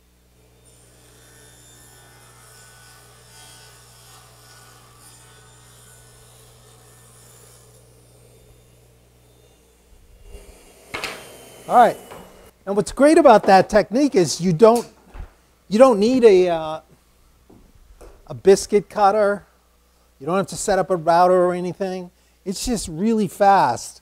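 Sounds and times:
table saw cutting wood: 0.3s - 12.6s
steady low hum: 5.4s - 13.2s.

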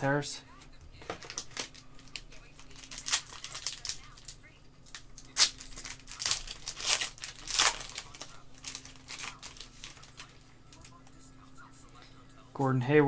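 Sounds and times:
foil wrapper tearing and crinkling: 1.2s - 11.0s.

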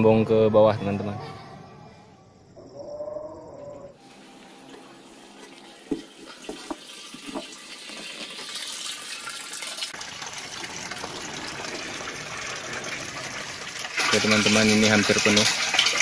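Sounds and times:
water pouring into a tank: 5.5s - 16.0s.

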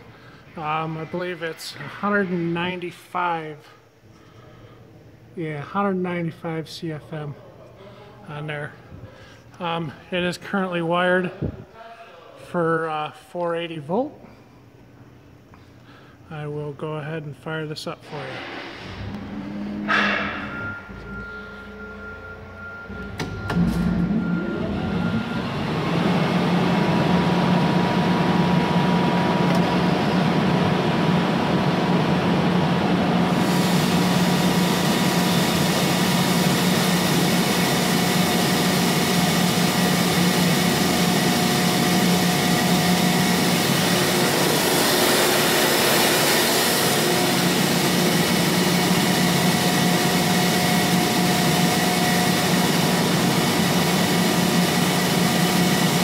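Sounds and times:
air compressor motor humming: 18.1s - 56.0s
air hissing: 33.3s - 53.9s.

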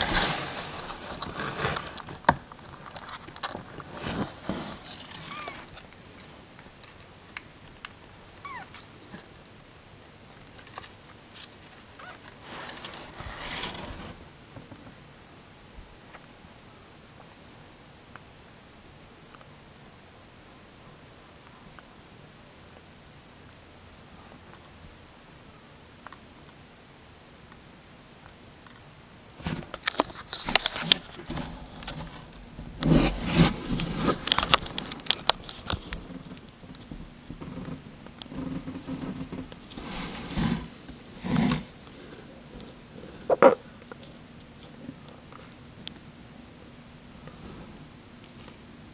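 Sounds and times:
kitten mewing: 5.1s - 5.8s, 8.4s - 8.9s.

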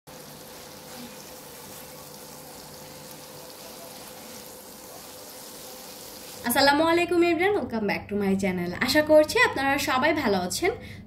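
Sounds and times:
chicken sizzling in a frying pan: 0.1s - 6.6s.

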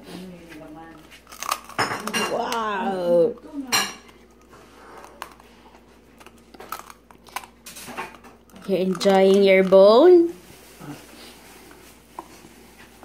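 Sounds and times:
dog crunching a bone: 0.9s - 10.3s.

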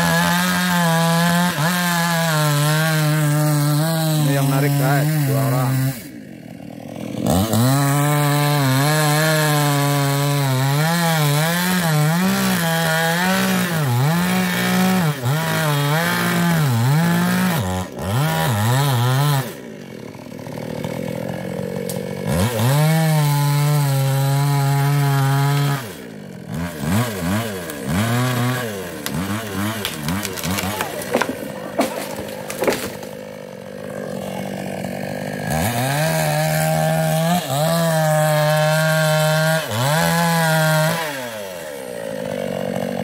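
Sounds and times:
chainsaw cutting tree trunk: 0.0s - 43.0s.

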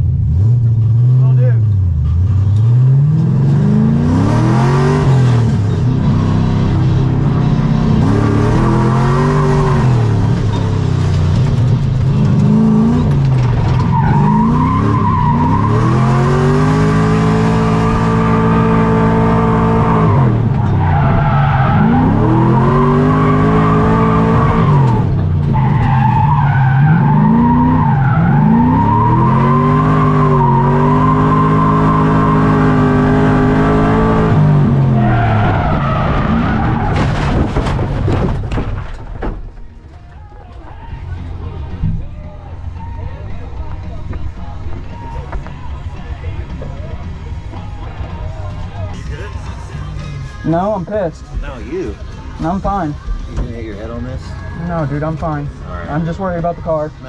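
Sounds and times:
tires squealing: 0.3s - 57.0s
car engine revving hard: 2.6s - 10.5s, 12.0s - 37.0s.

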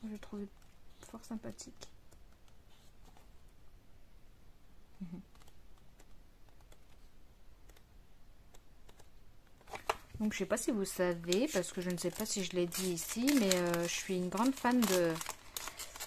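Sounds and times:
paper pages flicking: 11.0s - 16.0s.

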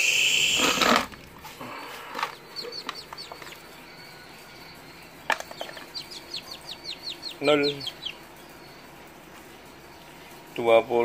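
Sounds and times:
loud hiss: 0.0s - 1.0s
quail chicks peeping: 0.0s - 10.9s.

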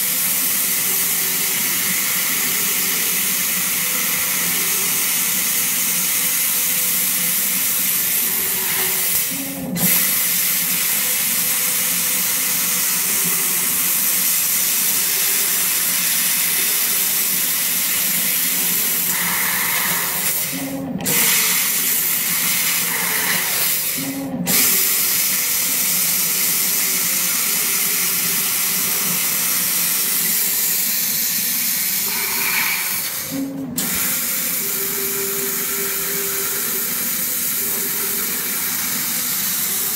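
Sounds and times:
laser cutter gas hiss: 0.0s - 39.9s.

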